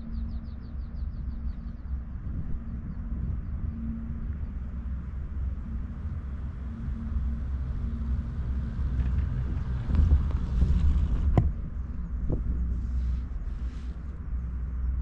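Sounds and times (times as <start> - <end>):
chairlift rope rumble: 5.0 - 14.2.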